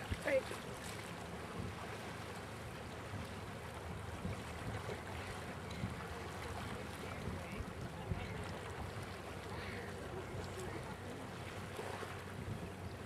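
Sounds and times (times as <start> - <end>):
sea water along shore: 0.0 - 13.0
wind: 0.0 - 13.0.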